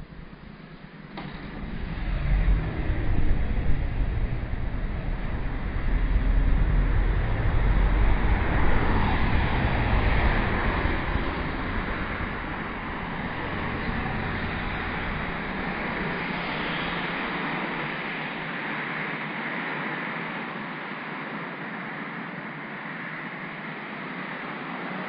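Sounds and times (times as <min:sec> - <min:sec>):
street traffic rumble: 0:00.0 - 0:19.6.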